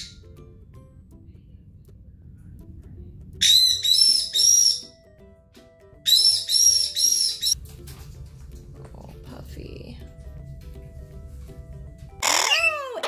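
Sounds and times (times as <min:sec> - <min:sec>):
soft background music: 0:00.0 - 0:13.0
parrot screeching calls: 0:03.4 - 0:05.0, 0:06.0 - 0:07.6, 0:12.2 - 0:13.0.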